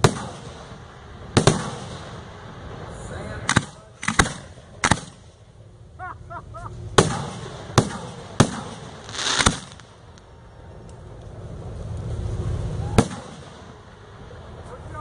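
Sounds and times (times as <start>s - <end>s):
firework shells bursting: 3.4s - 5.4s, 6.9s - 10.3s
firework hiss: 7.0s - 10.2s.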